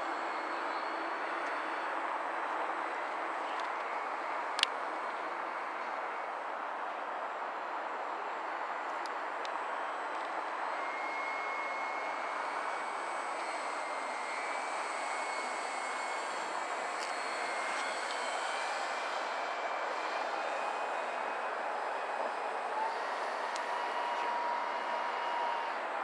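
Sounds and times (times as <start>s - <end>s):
model plane motor whine: 9.0s - 25.9s.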